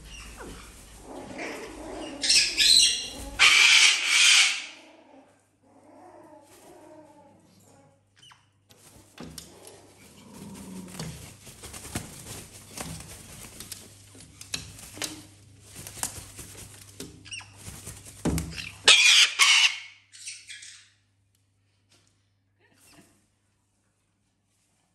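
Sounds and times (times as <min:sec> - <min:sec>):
bird wings flapping: 0:02.5 - 0:03.4, 0:08.7 - 0:18.9
rustling and light knocks: 0:08.7 - 0:18.9.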